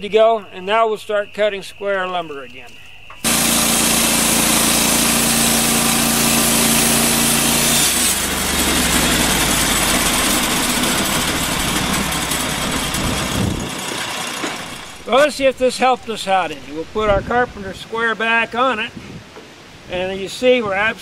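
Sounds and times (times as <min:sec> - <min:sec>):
band blade sawing log: 0:03.2 - 0:16.7
sawmill engine running: 0:03.2 - 0:17.2.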